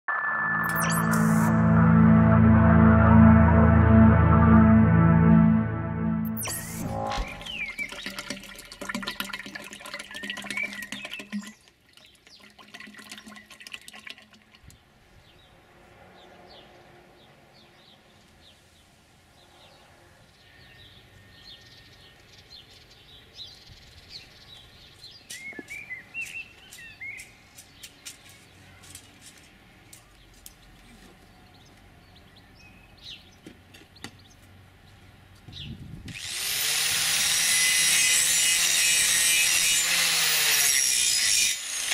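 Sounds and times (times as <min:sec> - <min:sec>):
bird chirps: 0:06.4 - 0:08.2
oil glugging from bottle: 0:07.6 - 0:14.6
angle grinder grinding steel: 0:36.1 - 0:41.9.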